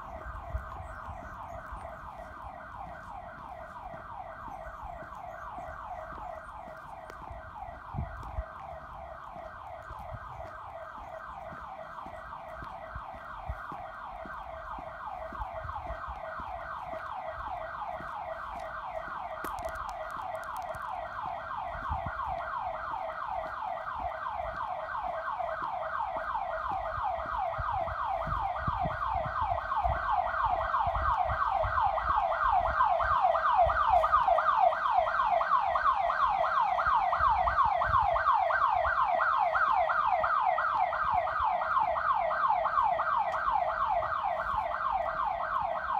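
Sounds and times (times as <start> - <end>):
faint footsteps thumps: 0.0 - 29.3.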